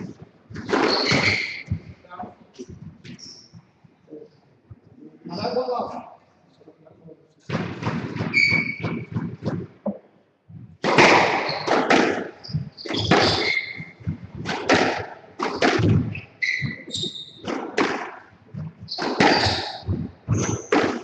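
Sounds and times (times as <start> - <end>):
squash ball smacking: 0.0 - 2.0, 7.5 - 10.0, 10.7 - 21.0
shoe squeaks on court floor: 0.6 - 2.0, 3.1 - 3.5, 8.2 - 9.2, 11.2 - 14.0, 16.0 - 17.8, 18.8 - 21.0.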